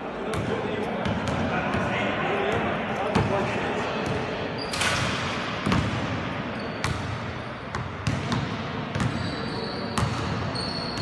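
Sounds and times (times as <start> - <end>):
basketball bouncing on floor: 5.6 - 6.1, 7.7 - 9.2.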